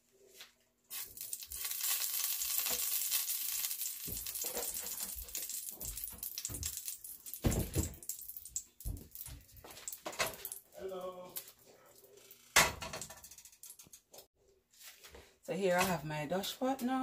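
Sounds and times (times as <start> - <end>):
oil sizzling in a pan: 0.9 - 10.6.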